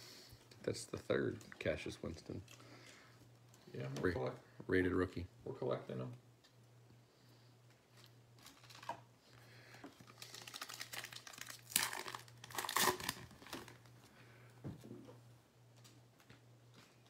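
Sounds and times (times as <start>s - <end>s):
foil wrapper tearing and crinkling: 8.4s - 9.1s, 9.9s - 13.9s.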